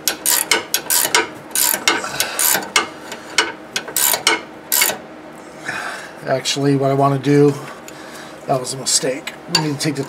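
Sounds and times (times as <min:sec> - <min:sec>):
ratcheting wrench clicking: 0:00.0 - 0:05.0.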